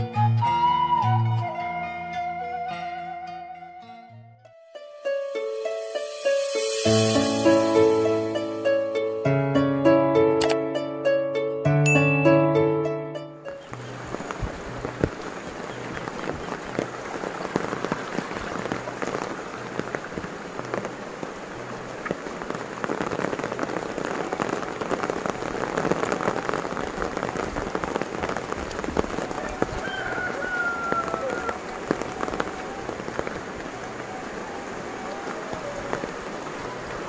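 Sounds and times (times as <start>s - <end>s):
close raindrops: 5.5s - 9.2s, 13.5s - 37.0s
rain falling on foliage: 5.8s - 8.9s, 13.5s - 37.0s.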